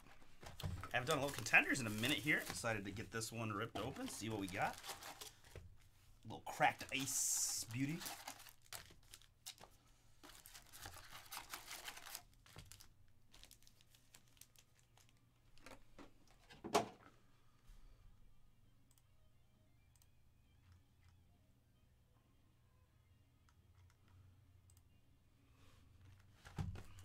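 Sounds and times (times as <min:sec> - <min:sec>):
foil packs crinkling: 0:00.0 - 0:05.6, 0:06.5 - 0:15.8.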